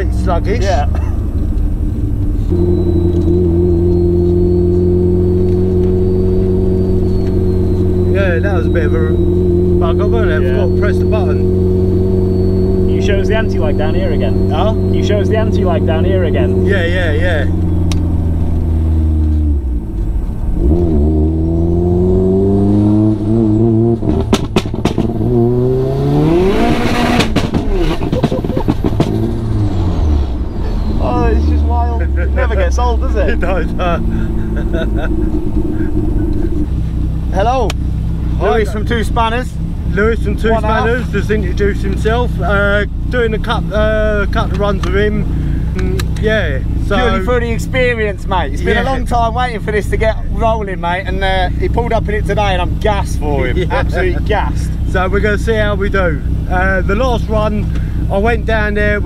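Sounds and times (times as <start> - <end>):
car engine running: 0.0 - 59.0
exhaust pops and bangs: 24.0 - 25.5, 26.6 - 29.5.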